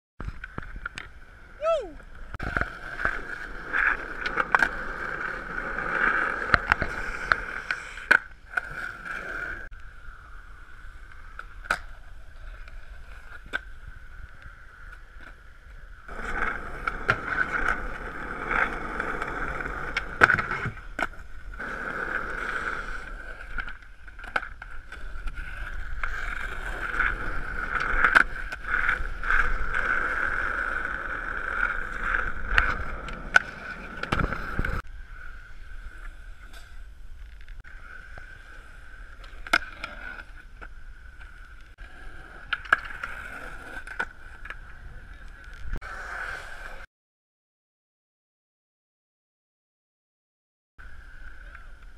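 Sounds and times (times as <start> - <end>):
skateboard wheels rolling on concrete: 0.2 - 46.9, 50.8 - 51.9
skateboard popping and landing clacks: 2.0 - 9.1, 16.1 - 22.3, 31.2 - 34.8.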